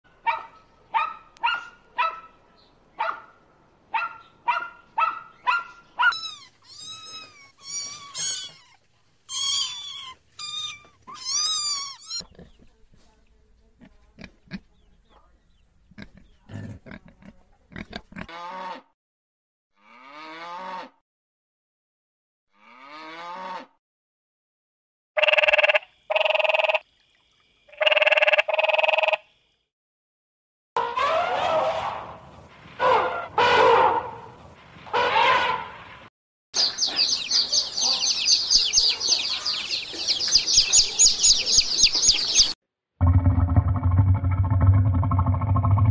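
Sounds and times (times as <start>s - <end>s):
puppy yapping: 4.0s - 12.2s
puppy whining: 6.0s - 12.2s
pigs grunting and squealing: 16.0s - 18.8s
tree frog croaking: 25.2s - 26.8s, 27.7s - 29.3s.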